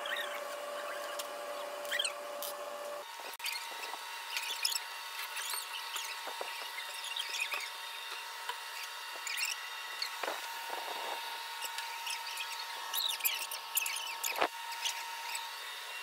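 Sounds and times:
high-pitched chirping squeaks: 0.0s - 2.2s, 3.4s - 7.7s, 8.7s - 10.2s, 11.6s - 15.5s.

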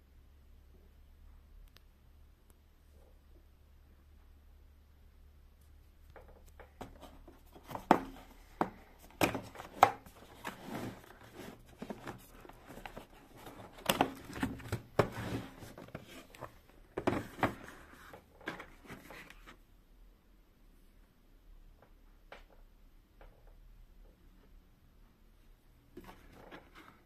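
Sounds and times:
hands handling cardboard box: 6.1s - 19.6s.

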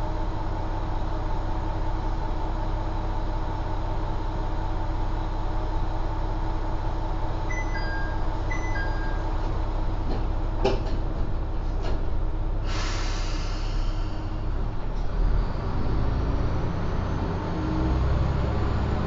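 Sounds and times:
diesel engine idling: 0.0s - 19.0s
air hissing: 12.6s - 14.5s.

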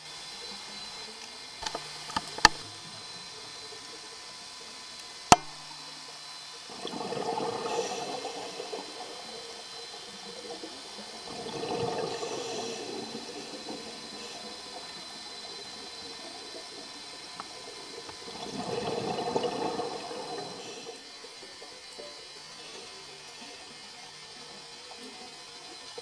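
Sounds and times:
sharp clicks: 5.3s - 5.6s
diver exhaling bubbles underwater: 6.7s - 9.9s, 11.2s - 15.0s, 18.1s - 21.0s.

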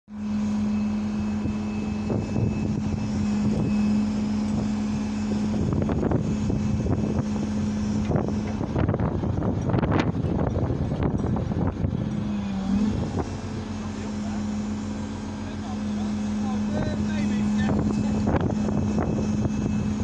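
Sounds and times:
engine running steadily: 0.1s - 20.0s.

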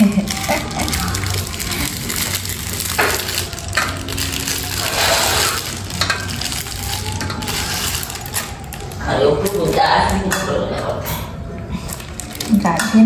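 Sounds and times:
knife cutting and scraping food: 4.8s - 5.6s.

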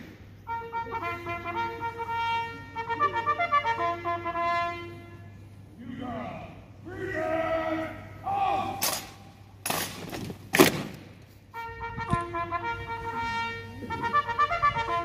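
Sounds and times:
brass band playing chords: 0.0s - 6.7s, 10.7s - 15.0s.

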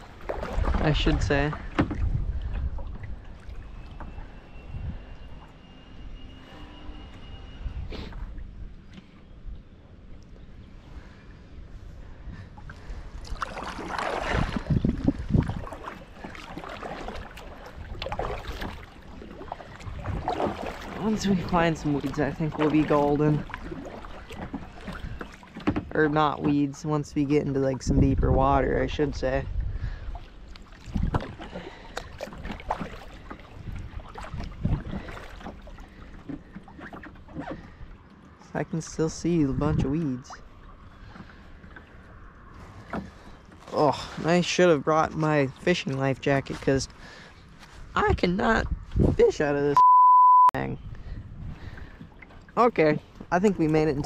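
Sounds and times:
paddle splashing in water: 0.0s - 7.3s, 12.3s - 28.0s, 29.2s - 38.4s, 40.3s - 47.9s.

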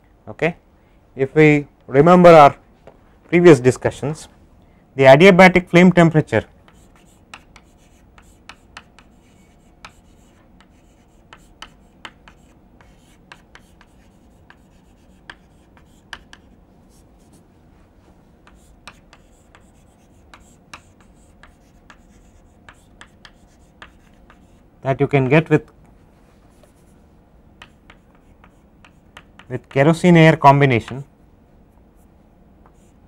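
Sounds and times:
chalk tapping and scratching: 6.6s - 17.4s, 18.4s - 24.6s, 26.4s - 27.0s, 27.6s - 29.9s, 32.6s - 33.0s.

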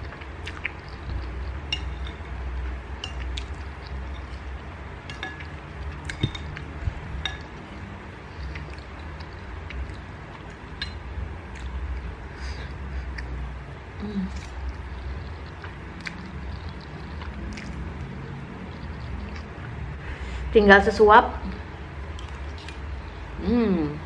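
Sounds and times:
low steady hum: 0.0s - 24.0s
cutlery clinking on ceramic plate: 5.1s - 6.6s, 7.2s - 7.7s.

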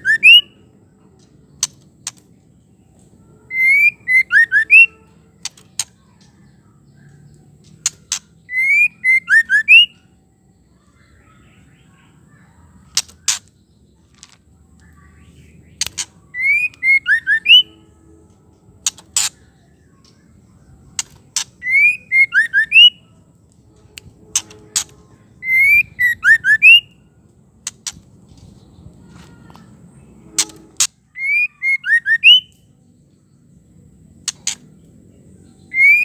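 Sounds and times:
bird whistled phrase: 0.0s - 0.6s, 3.5s - 5.0s, 8.4s - 10.0s, 16.3s - 17.8s, 21.6s - 23.0s, 24.3s - 27.0s, 30.4s - 32.6s, 35.6s - 36.0s.

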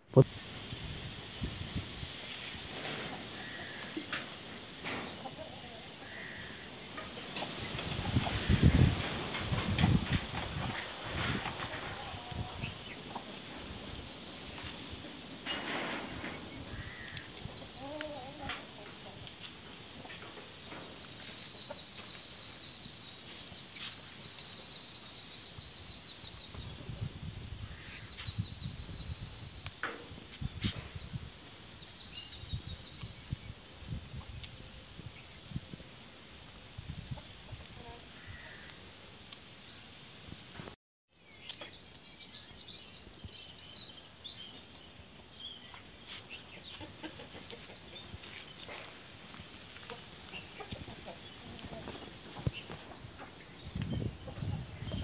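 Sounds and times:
small birds chirping: 1.4s - 55.0s
chickens clucking: 2.5s - 24.5s, 46.1s - 55.0s.

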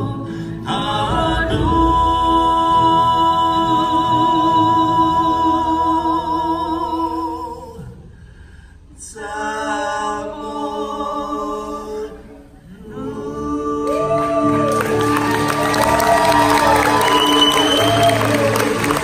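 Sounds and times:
voices singing unaccompanied: 9.0s - 15.0s.

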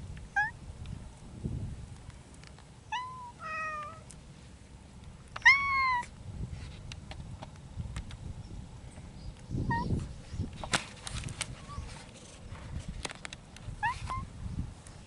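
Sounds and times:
cats meowing: 2.9s - 4.1s, 5.4s - 6.1s.

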